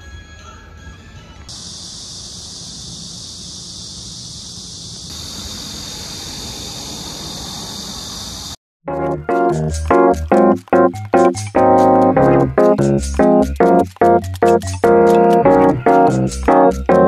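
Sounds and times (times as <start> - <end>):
cicadas droning: 1.5 - 8.6.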